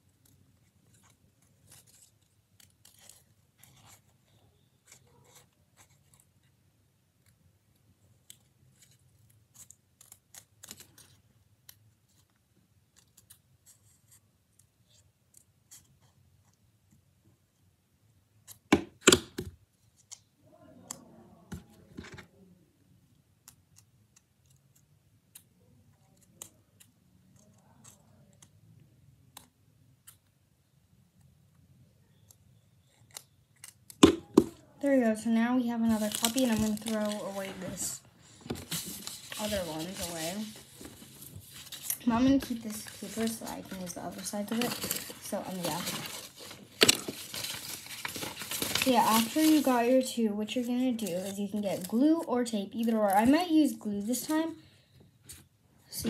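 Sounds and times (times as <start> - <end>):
scissors snipping paper: 8.2 - 11.8, 41.5 - 50.0
paper rustling: 35.8 - 54.5.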